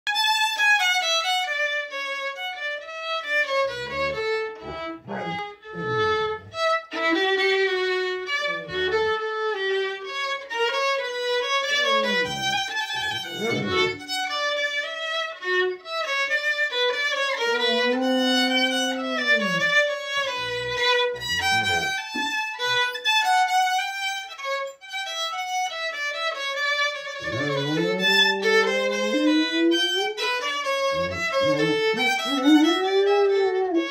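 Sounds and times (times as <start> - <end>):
violin played with a bow: 0.1 - 33.9
dog howling: 3.7 - 6.6, 8.3 - 9.2, 11.7 - 14.0, 17.4 - 22.3, 27.2 - 33.9.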